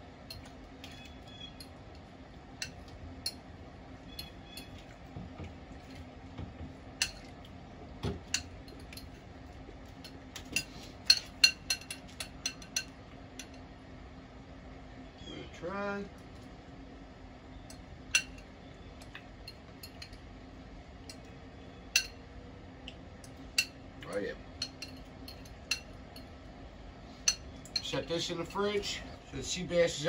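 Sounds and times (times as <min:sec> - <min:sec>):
metal utensil clinking on glass bowl: 0:10.0 - 0:13.6, 0:18.2 - 0:18.4, 0:19.5 - 0:20.2, 0:22.0 - 0:22.2, 0:24.6 - 0:26.3.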